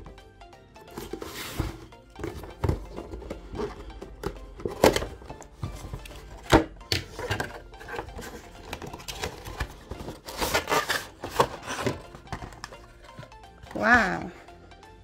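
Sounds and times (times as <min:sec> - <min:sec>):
rustling and scraping: 0:00.9 - 0:03.8
packaging taps and knocks: 0:00.9 - 0:13.4.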